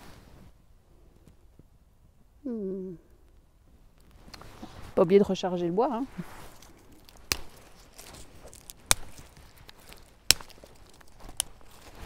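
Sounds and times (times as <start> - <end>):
dry sticks snapping: 6.5 - 12.0.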